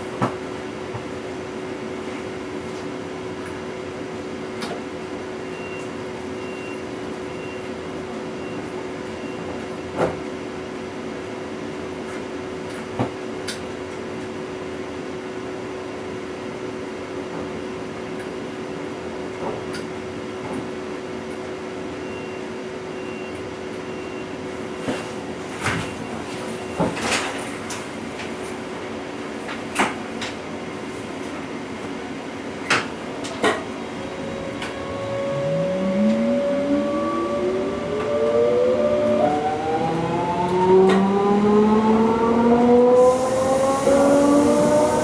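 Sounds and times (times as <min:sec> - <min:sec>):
train electrical hum: 0:00.0 - 0:45.0
faint high beep pulsing: 0:34.4 - 0:39.4.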